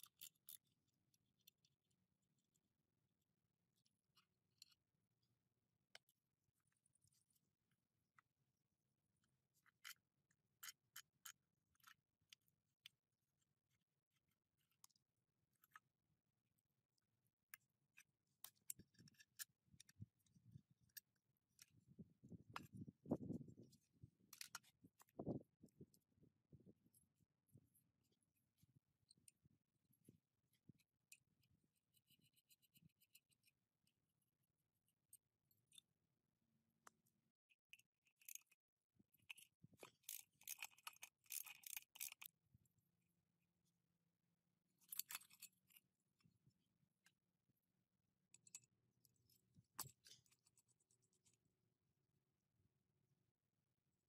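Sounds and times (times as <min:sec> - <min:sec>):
clicks and scrapes of metal parts: 0:00.0 - 0:01.7, 0:09.5 - 0:13.0, 0:17.5 - 0:26.0, 0:26.8 - 0:34.0, 0:36.8 - 0:42.4, 0:44.8 - 0:46.0, 0:48.3 - 0:51.5.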